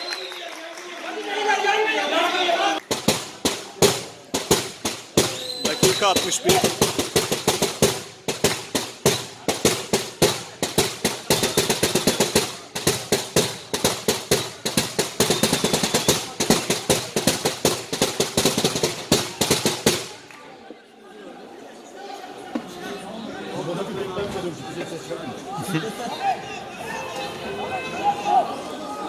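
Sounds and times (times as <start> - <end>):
fast rhythmic drum bangs: 2.8 - 20.2.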